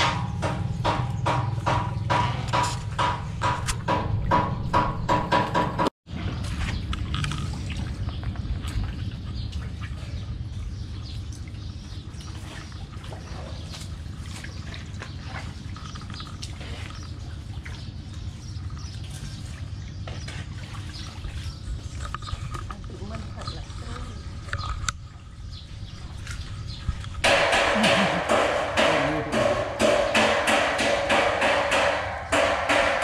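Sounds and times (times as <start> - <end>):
small water splashes: 6.1 - 28.3
water trickling over rocks: 6.3 - 27.2.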